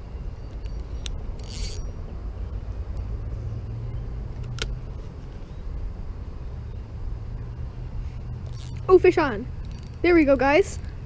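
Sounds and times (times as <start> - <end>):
distant road traffic rumble: 0.0 - 11.0
sharp click: 4.4 - 4.8.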